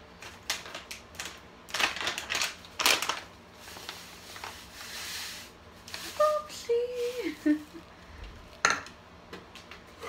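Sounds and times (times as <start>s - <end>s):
plastic bag rustling and crinkling: 0.2s - 8.6s.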